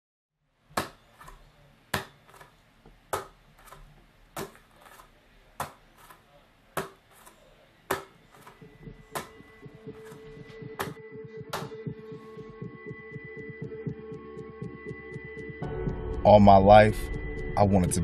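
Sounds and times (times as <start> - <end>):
music: 8.6 - 18.0.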